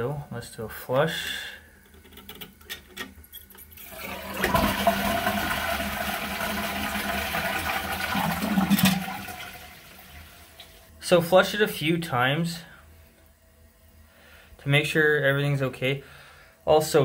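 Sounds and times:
toilet flush water rushing: 3.8s - 10.6s.

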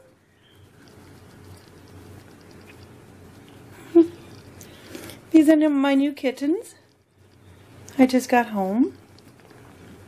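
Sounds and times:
faint ticks: 0.7s - 3.6s, 9.0s - 9.7s
kitten purring: 0.7s - 5.1s, 8.9s - 10.0s.

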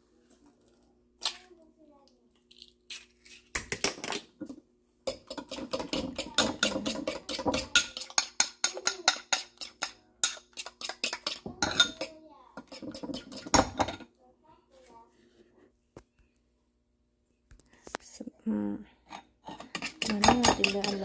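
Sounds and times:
fork beating in ceramic bowl: 5.1s - 13.7s, 19.6s - 21.0s.

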